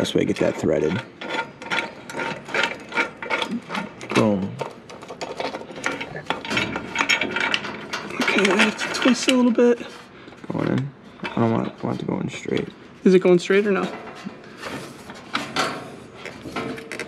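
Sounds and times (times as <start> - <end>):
metallic clicking and clinking: 0.4 - 9.9.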